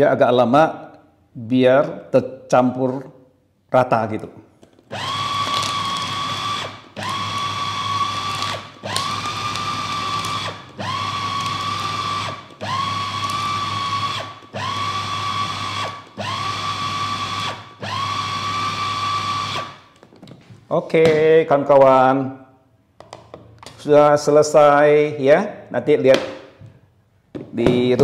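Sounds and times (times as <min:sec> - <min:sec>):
electric food chopper whine: 0:04.9 - 0:20.0.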